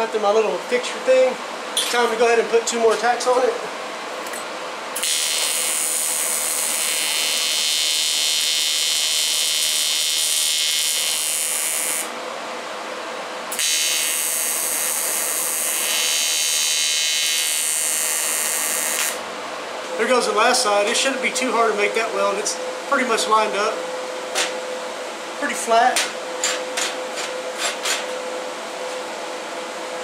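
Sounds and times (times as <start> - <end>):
welding arc buzzing: 5.0 - 12.2, 13.5 - 19.3.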